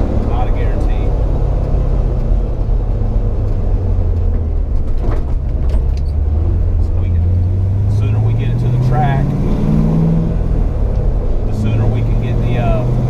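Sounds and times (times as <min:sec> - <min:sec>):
car engine drone: 0:00.0 - 0:13.0
road noise: 0:00.0 - 0:13.0.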